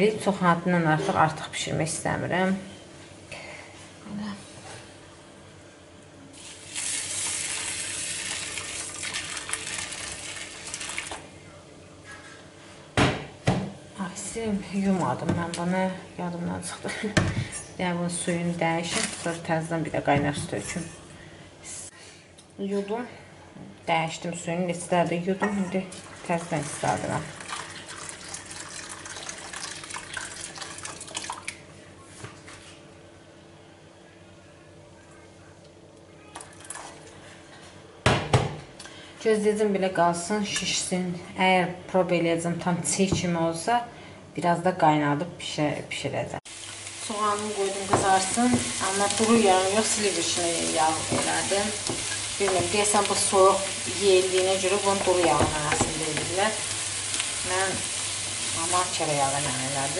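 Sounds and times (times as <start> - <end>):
water pouring from kettle: 6.5 - 11.2, 26.0 - 31.6.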